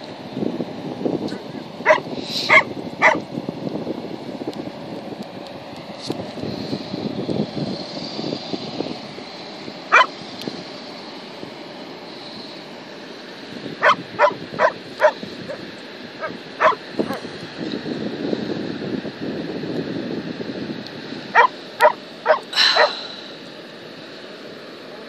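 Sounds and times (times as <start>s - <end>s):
wind buffeting microphone: 0.0s - 11.6s, 13.4s - 23.0s
dog barking: 1.9s - 3.2s, 9.9s - 10.1s, 13.8s - 15.2s, 16.2s - 17.2s, 21.4s - 22.9s.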